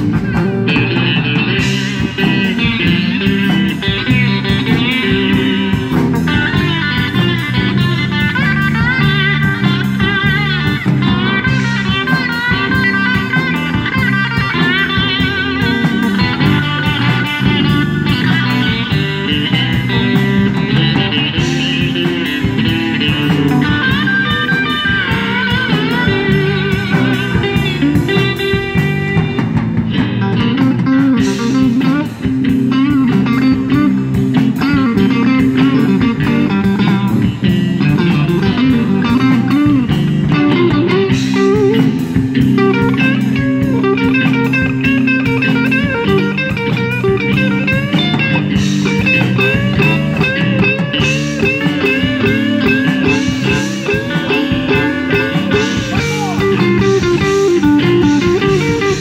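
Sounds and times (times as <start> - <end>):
blues band playing: 0.0 - 59.0
lead electric guitar bent notes: 0.0 - 59.0.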